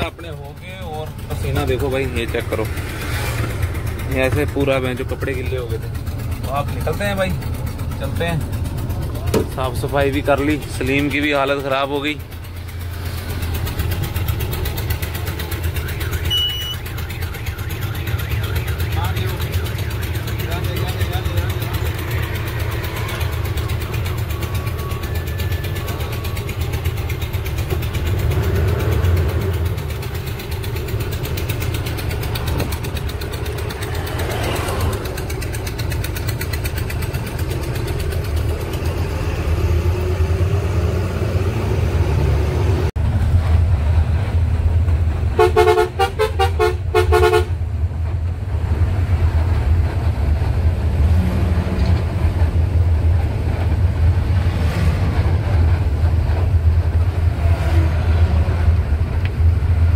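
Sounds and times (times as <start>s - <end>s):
truck engine and road rumble: 0.0s - 59.9s
horn short multi-toned blasts: 15.6s - 20.2s, 45.4s - 47.6s.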